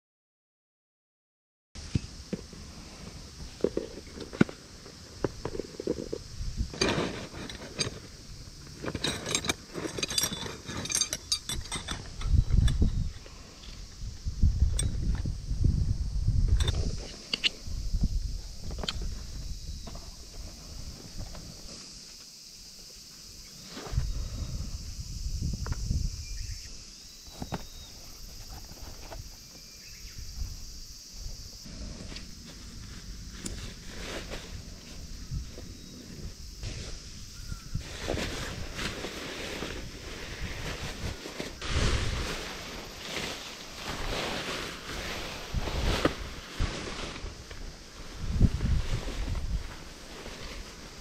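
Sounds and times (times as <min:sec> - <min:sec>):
insects hissing: 0:01.8 - 0:51.0
metal tent pegs clinking: 0:06.7 - 0:13.1
rustling: 0:31.7 - 0:51.0.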